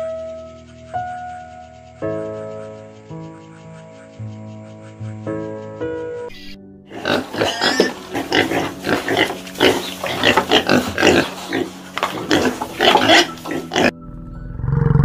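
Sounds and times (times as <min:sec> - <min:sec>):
piglets grunting: 0:06.9 - 0:13.9.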